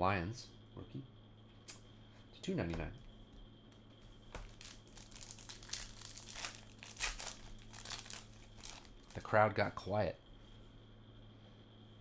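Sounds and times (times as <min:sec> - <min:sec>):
plastic wrapper crinkling: 0:04.4 - 0:09.3.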